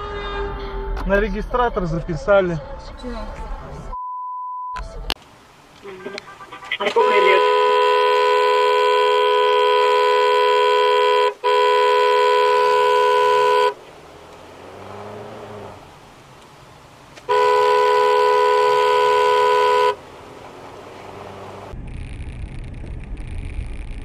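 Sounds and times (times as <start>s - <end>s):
engine and road hum: 4.8s - 24.0s
two-note car horn blasts: 6.0s - 13.8s, 17.3s - 20.0s.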